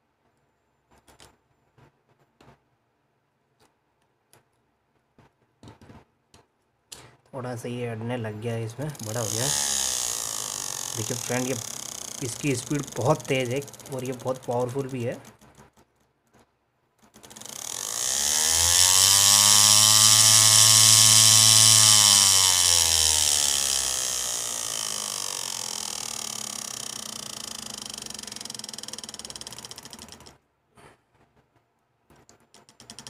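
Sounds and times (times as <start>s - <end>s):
small motor whine: 9.0s - 15.3s, 17.2s - 30.3s.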